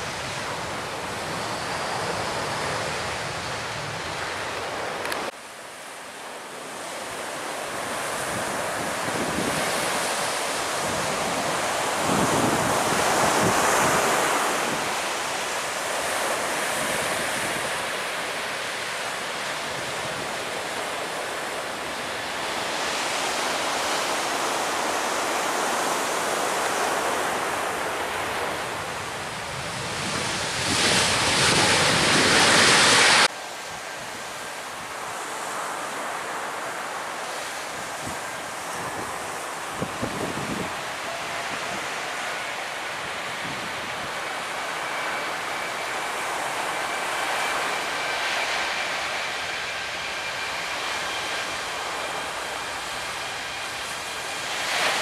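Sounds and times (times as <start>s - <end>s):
jet plane rush: 0.0s - 55.0s
breaking surf: 6.8s - 55.0s
wind buffeting microphone: 7.6s - 18.0s, 26.2s - 34.9s, 37.7s - 55.0s.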